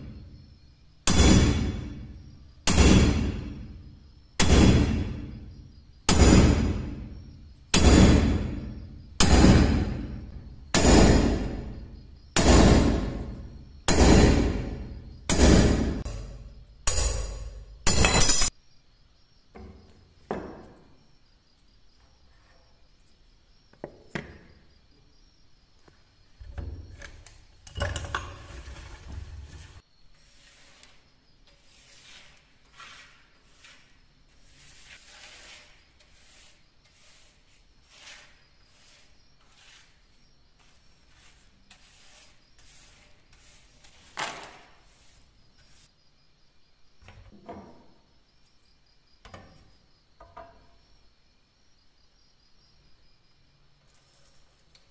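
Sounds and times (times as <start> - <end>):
hammer striking steel punch: 1.1 - 2.0, 2.7 - 3.6, 4.4 - 5.2, 6.1 - 7.0, 7.7 - 8.6, 9.2 - 10.1, 10.7 - 11.6, 12.4 - 13.2, 13.9 - 18.5
metal clinks: 17.1 - 18.5
brushing debris off workbench: 28.3 - 45.9.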